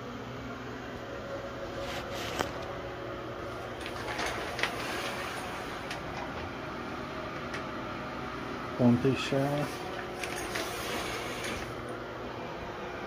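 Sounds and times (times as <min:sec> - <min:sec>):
shower curtain hooks sliding on rod: 0:10.2 - 0:11.8.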